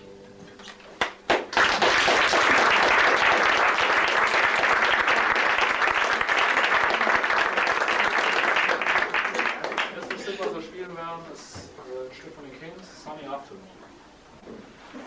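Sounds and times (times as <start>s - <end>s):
audience applause: 1.0s - 10.6s.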